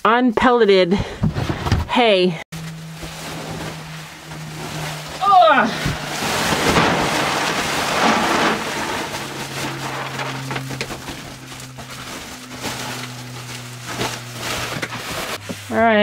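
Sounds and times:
sack rustling and crinkling: 0:02.6 - 0:15.8
hay pellets pouring into bucket: 0:06.0 - 0:10.4.

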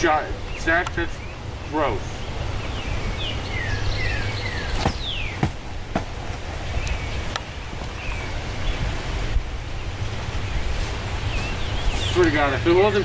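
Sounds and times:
birds chirping: 0:00.0 - 0:13.0
wind rumble on microphone: 0:00.4 - 0:13.0
rustling through dry grass: 0:04.2 - 0:12.5.

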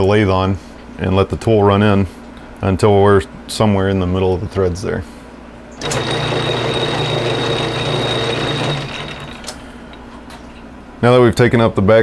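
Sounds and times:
metal lathe running with whine: 0:05.8 - 0:09.6.

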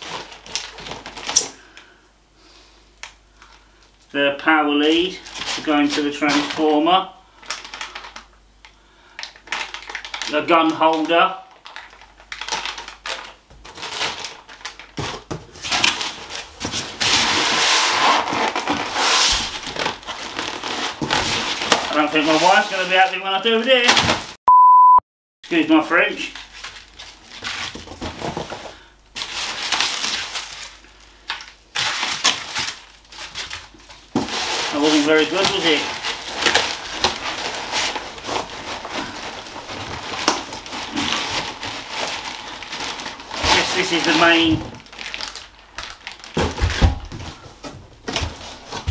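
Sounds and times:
packing rustling in cardboard box: 0:00.0 - 0:01.4, 0:05.2 - 0:06.7, 0:11.6 - 0:24.4, 0:26.1 - 0:48.9
plastic wrapping crackling: 0:00.0 - 0:01.9, 0:04.8 - 0:24.4, 0:25.5 - 0:48.9.

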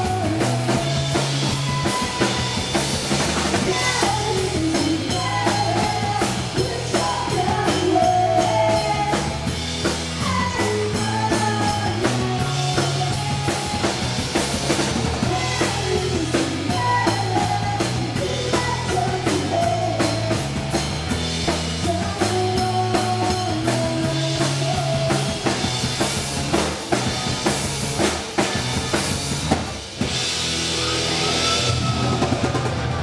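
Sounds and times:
woman singing: 0:00.0 - 0:02.6, 0:03.6 - 0:09.5, 0:10.2 - 0:14.0, 0:15.2 - 0:20.5, 0:21.7 - 0:25.6
live rock band playing: 0:00.0 - 0:33.0.

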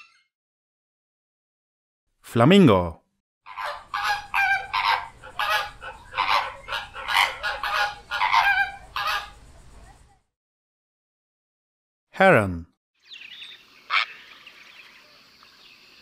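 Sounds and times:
flamingo calling: 0:03.5 - 0:09.9, 0:13.1 - 0:15.1.

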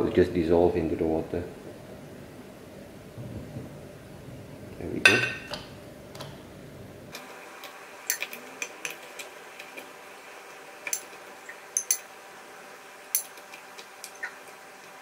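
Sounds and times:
metal spoon clinking on ceramic plate: 0:11.8 - 0:12.1.

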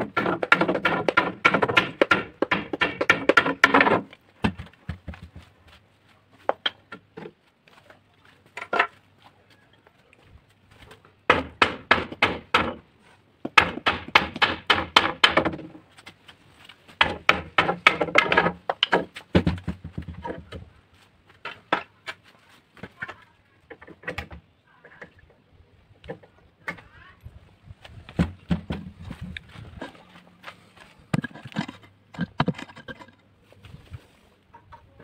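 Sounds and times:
hammer knocking on wood: 0:00.1 - 0:05.5, 0:11.3 - 0:12.8, 0:13.5 - 0:15.7, 0:17.0 - 0:20.3.

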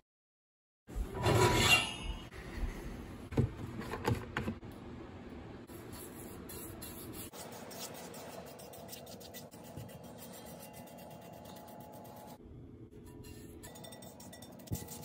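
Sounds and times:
pan scraping on metal oven rack: 0:01.1 - 0:02.2.

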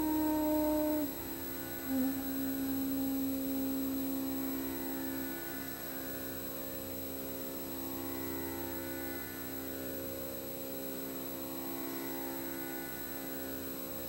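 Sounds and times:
slow drone background music: 0:00.0 - 0:06.4.

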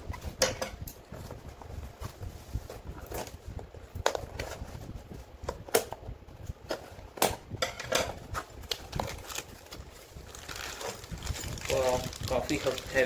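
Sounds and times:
plastic packing rustling: 0:08.2 - 0:13.0.

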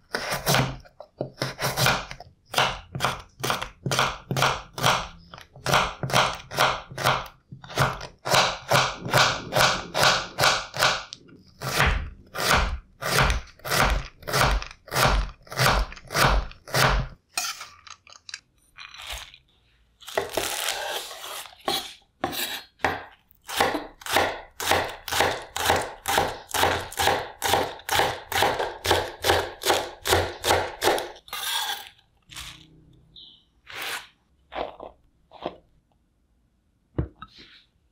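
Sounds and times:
knife chopping on cutting board: 0:11.6 - 0:17.1, 0:21.6 - 0:31.2.

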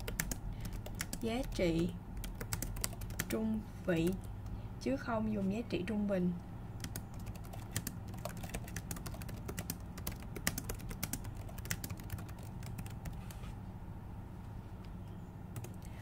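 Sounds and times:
typing on a keyboard: 0:00.0 - 0:01.6, 0:02.2 - 0:03.4, 0:06.8 - 0:13.4.

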